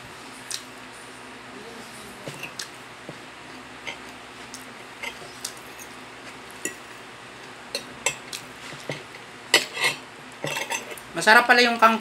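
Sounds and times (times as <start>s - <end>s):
metal spoon scraping a plate: 3.8s - 4.1s, 5.0s - 6.0s, 9.6s - 11.0s.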